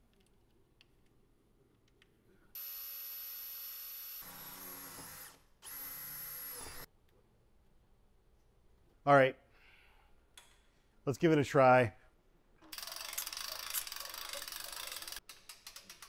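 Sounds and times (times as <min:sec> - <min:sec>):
cordless drill whining: 0:02.6 - 0:06.9.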